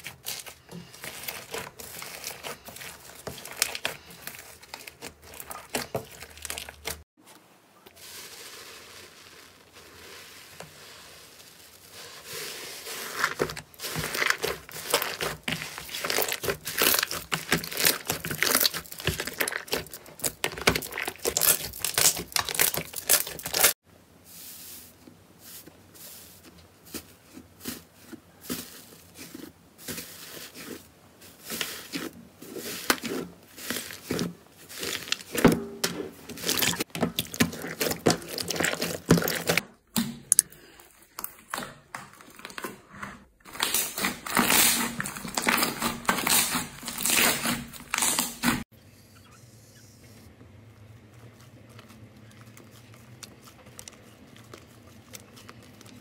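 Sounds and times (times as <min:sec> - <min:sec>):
slime squished by hand: 0:13.2 - 0:23.7.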